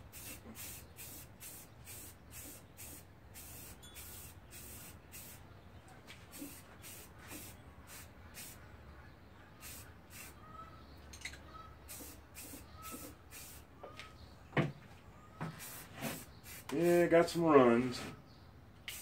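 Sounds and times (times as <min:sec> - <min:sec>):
aerosol spray can hissing: 0:00.1 - 0:05.4, 0:06.3 - 0:08.6, 0:09.6 - 0:10.4, 0:11.9 - 0:13.6, 0:15.6 - 0:16.7.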